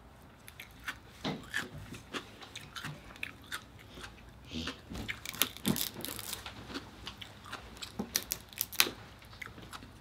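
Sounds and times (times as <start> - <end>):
chewing: 0.4 - 10.0
crab shell cracking: 7.9 - 9.0.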